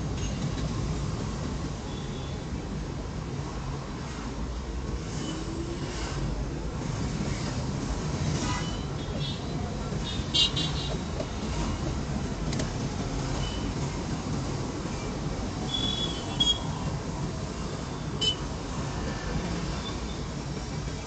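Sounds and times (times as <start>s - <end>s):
engine and road noise: 0.0s - 21.0s
car horn beeps: 15.7s - 16.7s, 18.2s - 18.5s.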